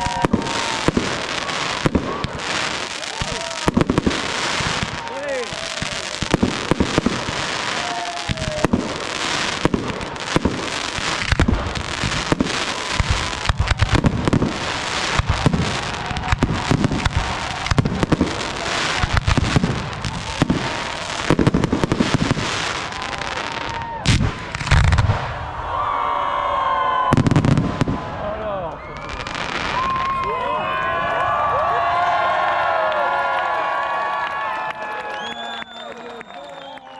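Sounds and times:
firework crackling: 0.0s - 25.5s, 27.1s - 30.3s
firework shells bursting: 1.8s - 23.1s.

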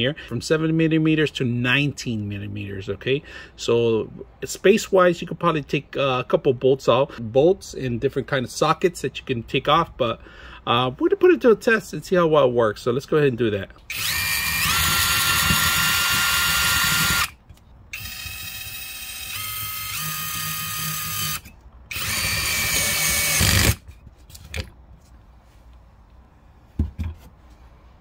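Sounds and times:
cordless drill motor whining: 13.9s - 23.8s.

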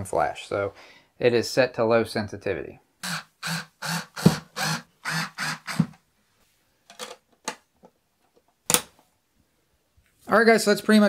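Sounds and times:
electric screwdriver driving screw: 3.0s - 6.0s.

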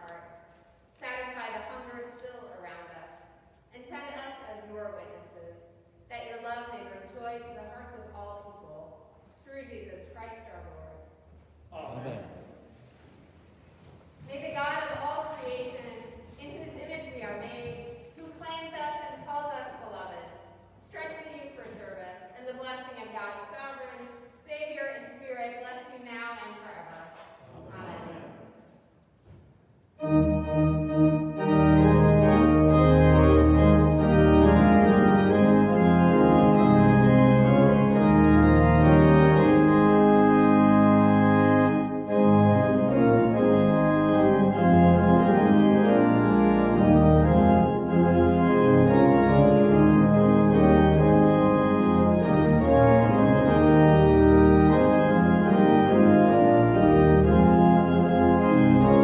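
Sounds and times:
church organ playing chords: 30.0s - 59.0s.

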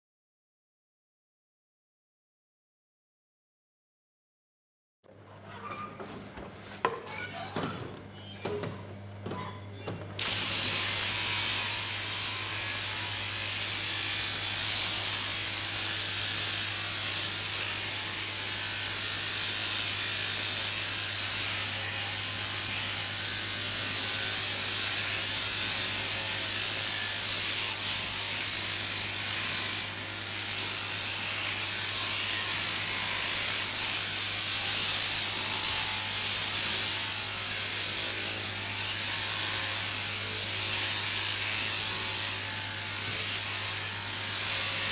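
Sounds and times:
shearing handpiece humming: 10.2s - 44.9s.

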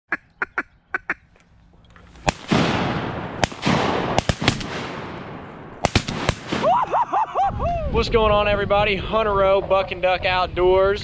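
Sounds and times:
shotgun blasts with echo: 2.2s - 6.9s.

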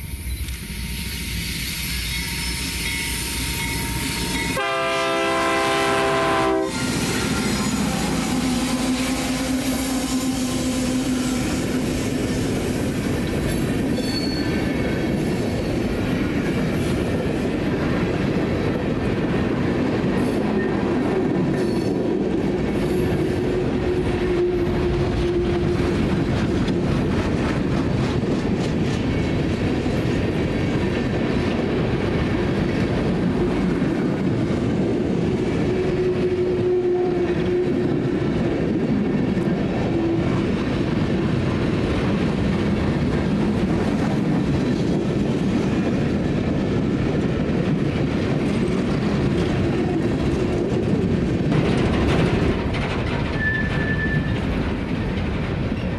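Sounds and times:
diesel locomotives approaching: 0.0s - 55.9s
train wheels rumbling on rails: 0.0s - 55.9s
faint wheel squeal: 0.2s - 4.5s, 14.0s - 14.9s, 53.3s - 54.5s
train horn blast: 3.5s - 11.6s, 35.8s - 37.9s.

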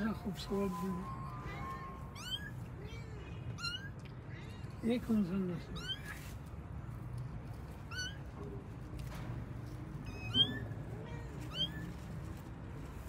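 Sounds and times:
kittens mewing: 1.3s - 4.6s, 5.6s - 6.3s, 7.8s - 8.5s, 10.1s - 12.1s.

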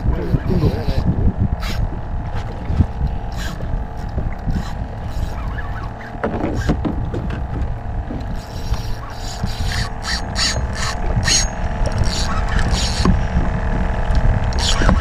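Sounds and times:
boat engine hum: 0.0s - 15.0s.

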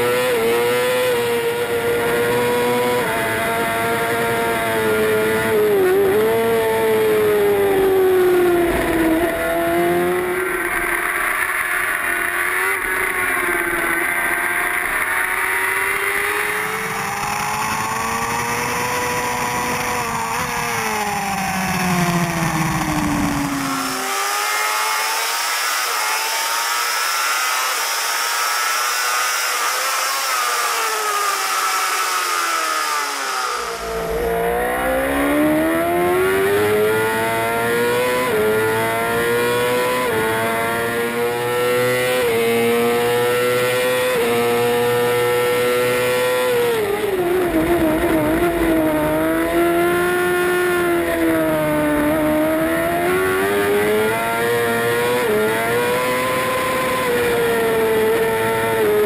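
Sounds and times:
racing motorcycle engine: 0.0s - 59.0s.

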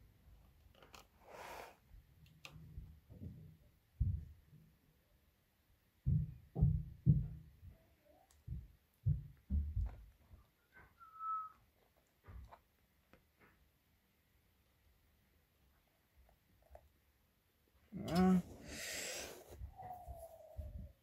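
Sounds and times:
dull low thumps: 6.0s - 7.6s
short whistle-like tone: 11.0s - 11.6s.

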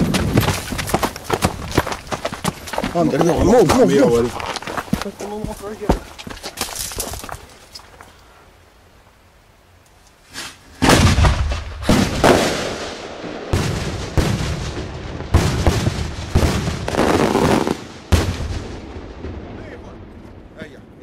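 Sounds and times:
firework booms: 10.8s - 20.6s.

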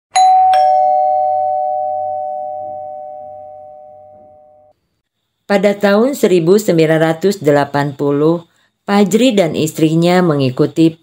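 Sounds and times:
ding-dong doorbell chime: 0.1s - 4.7s.

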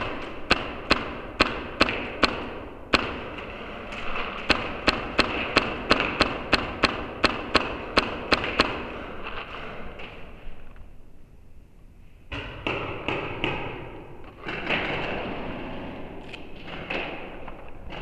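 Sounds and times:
paintball marker shots echoing: 0.0s - 3.5s, 4.4s - 10.4s, 12.3s - 14.9s.

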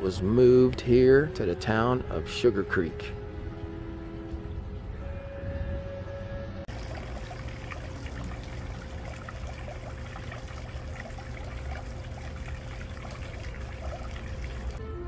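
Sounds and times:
water trickling into a basin: 6.7s - 14.8s.

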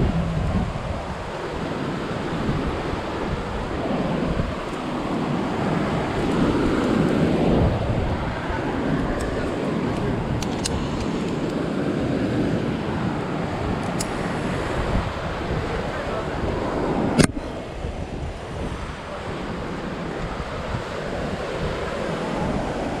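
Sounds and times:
ocean surf: 0.0s - 23.0s
wind buffeting microphone: 0.0s - 23.0s.

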